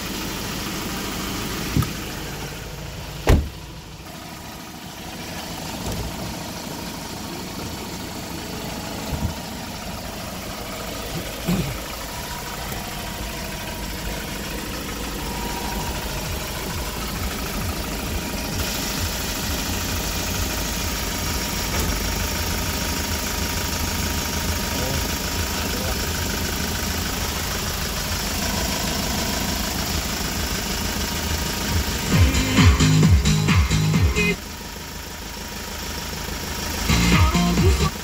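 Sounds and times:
diesel engine idling: 0.0s - 38.0s
short engine knocks: 1.7s - 2.0s, 3.2s - 3.6s.

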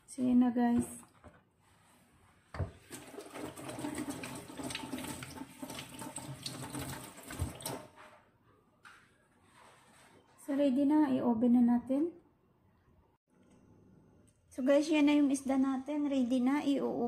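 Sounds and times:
water running from tap: 2.6s - 8.0s.

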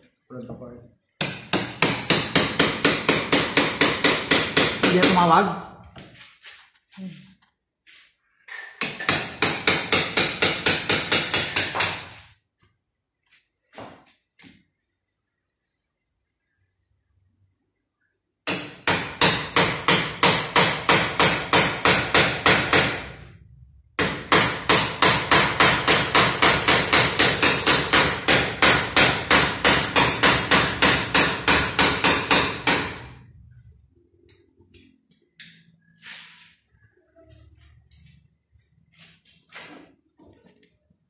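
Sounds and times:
rapid hammering: 1.2s - 5.4s, 8.5s - 12.2s, 18.4s - 23.3s, 24.0s - 33.2s.

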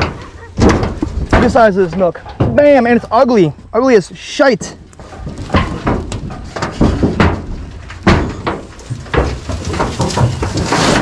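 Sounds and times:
metal roofing sheet knocking and scraping: 0.0s - 3.1s, 5.0s - 11.0s
dry grass rustling: 4.8s - 11.0s.

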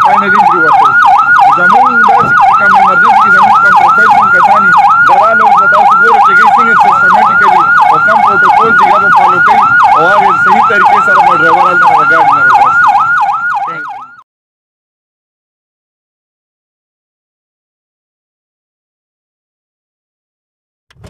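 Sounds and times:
ambulance siren yelping: 0.0s - 14.3s.

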